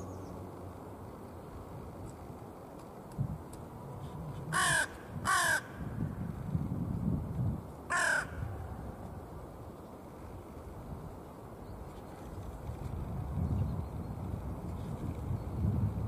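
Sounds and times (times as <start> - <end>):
crow cawing: 4.5 - 5.8, 7.9 - 8.5.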